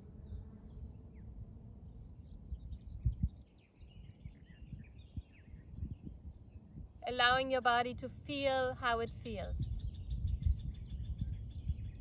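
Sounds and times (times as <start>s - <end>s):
wind rumble on microphone: 0.0s - 12.0s
small birds chirping: 8.4s - 12.0s.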